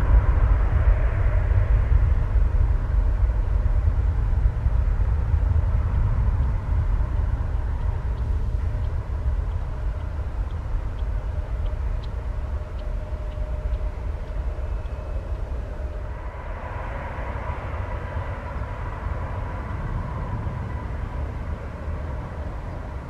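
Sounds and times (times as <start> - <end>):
jet engines at takeoff thrust: 0.0 - 23.0.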